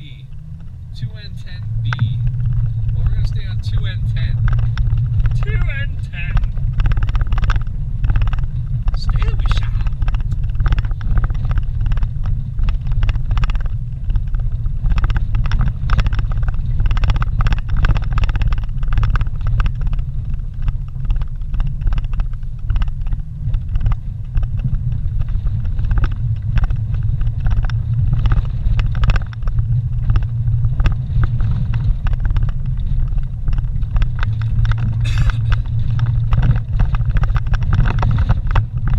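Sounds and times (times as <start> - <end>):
rattles and knocks over bumps: 0.0 - 38.9
vehicle engine and tyres rumbling: 0.0 - 38.9.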